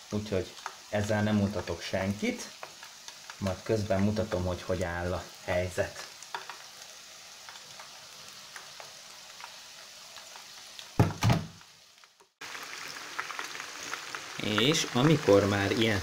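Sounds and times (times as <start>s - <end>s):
chicken deep-frying in oil: 0.0s - 16.0s
thump: 11.0s - 11.6s.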